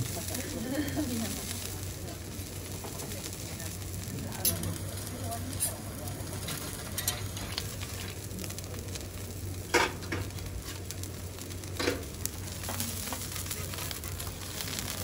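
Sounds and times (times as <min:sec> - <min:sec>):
steak sizzling on griddle: 0:00.0 - 0:15.0
spatulas clinking on griddle: 0:04.4 - 0:04.8, 0:05.5 - 0:08.2.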